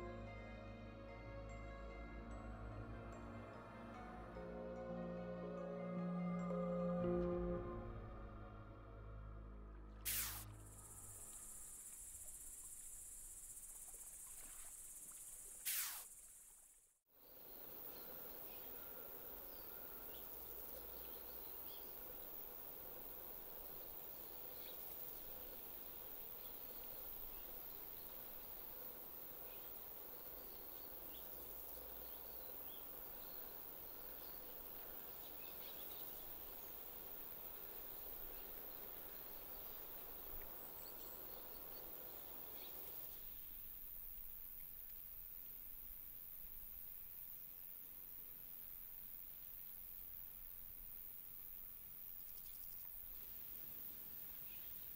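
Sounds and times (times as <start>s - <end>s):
short swoosh: 10.1s - 10.6s
insect chirps: 10.1s - 54.9s
steady hiss: 10.1s - 54.9s.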